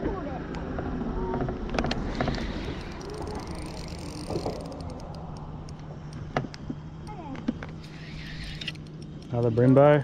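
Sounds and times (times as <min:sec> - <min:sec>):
boat low hum: 0:00.0 - 0:10.0
sharp clicks: 0:01.8 - 0:09.8.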